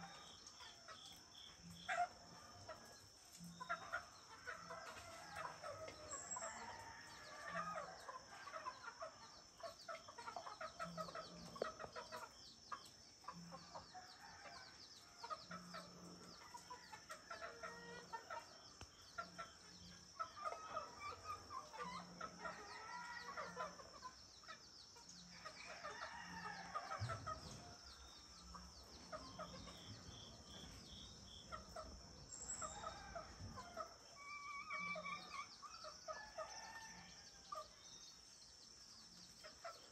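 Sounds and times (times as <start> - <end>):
chickens clucking: 0.0 - 39.9
roosters crowing: 25.7 - 27.7.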